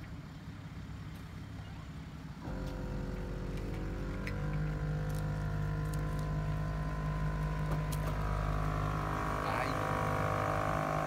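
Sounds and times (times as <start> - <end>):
air compressor whining: 2.4 - 11.0.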